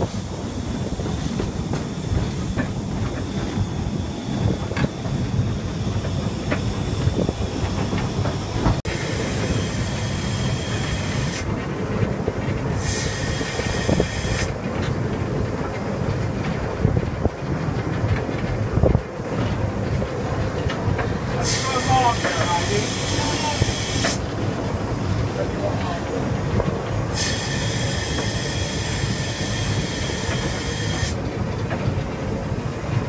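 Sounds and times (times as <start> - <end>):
loud steam hiss: 0.0 - 11.5, 12.7 - 14.6, 21.3 - 31.3
rail-joint clicks: 0.0 - 33.0
steam locomotive rumble: 0.0 - 33.0.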